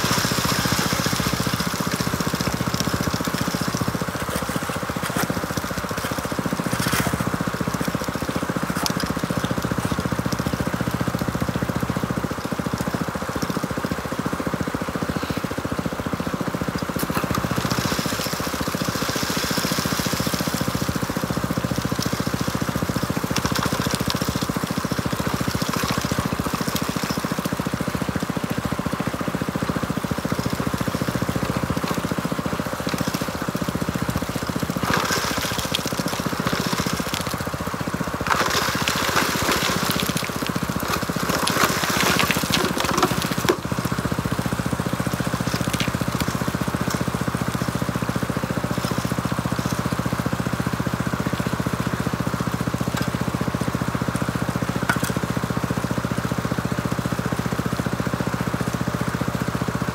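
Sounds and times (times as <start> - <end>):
water rushing: 0.0 - 10.1, 16.9 - 51.5
water pump engine running: 0.0 - 59.9.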